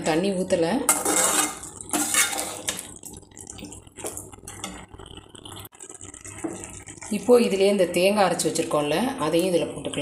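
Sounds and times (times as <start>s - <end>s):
metal spoon scraping metal pot: 0.9s - 2.8s.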